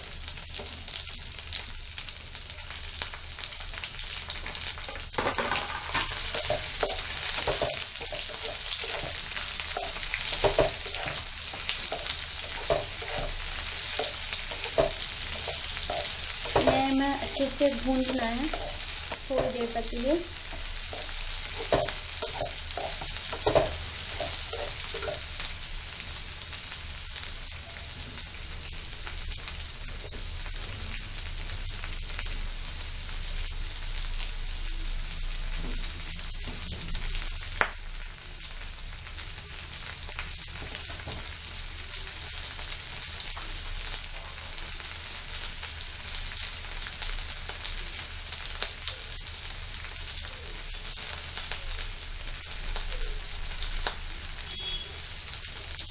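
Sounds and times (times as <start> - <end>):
vegetables sizzling in hot oil: 0.0 - 55.9
spatula knocking against pan: 20.5 - 25.2.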